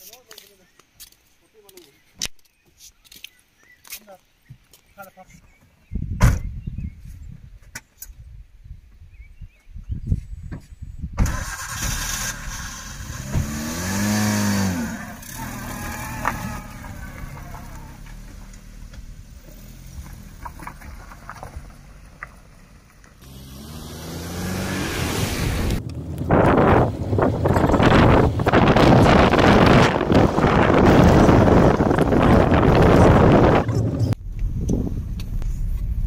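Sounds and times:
wind rushing on microphone: 5.8s - 12.3s, 24.0s - 36.0s
vehicle engine starting and revving: 11.2s - 22.1s, 23.2s - 34.2s.

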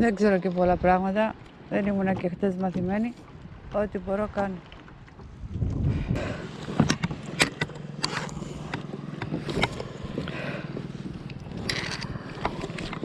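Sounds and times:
steady low drone: 5.4s - 13.0s
knocks and clicks of gear handling: 6.7s - 10.3s.

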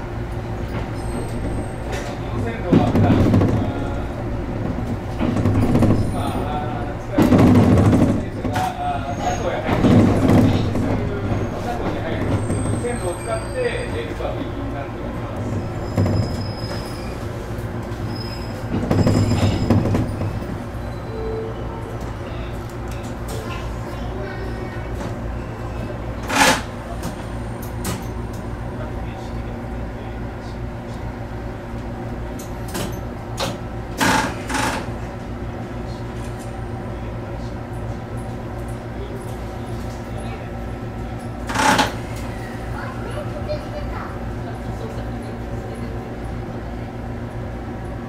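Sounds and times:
electrical hum in train cab: 0.0s - 48.0s
train wheels clunking over joints: 0.6s - 13.2s, 15.3s - 20.8s
high-pitched wheel squeals: 0.9s - 2.0s, 12.4s - 14.0s, 15.8s - 17.2s, 18.1s - 20.2s, 20.8s - 21.8s.

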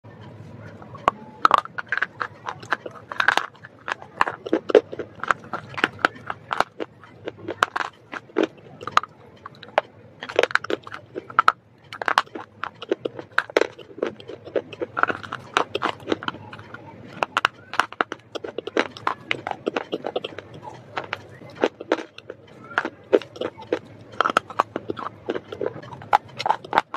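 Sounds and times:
chewing: 0.2s - 26.9s
crunching and snapping bites: 1.4s - 26.9s.

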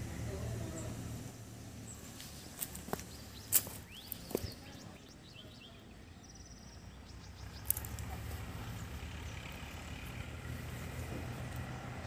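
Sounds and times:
bird chirps: 1.7s - 8.2s.

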